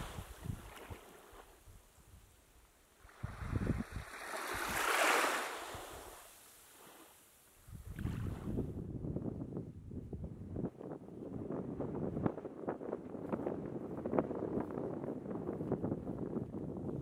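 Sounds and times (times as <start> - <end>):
wind rumble on microphone: 0.0 - 2.4, 3.0 - 6.2, 7.6 - 17.0
small wave washing up sand: 3.0 - 7.2.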